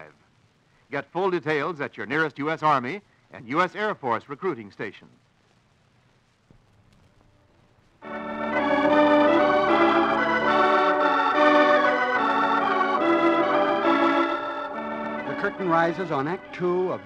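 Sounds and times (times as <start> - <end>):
organ playing slow chords: 8.0 - 17.0.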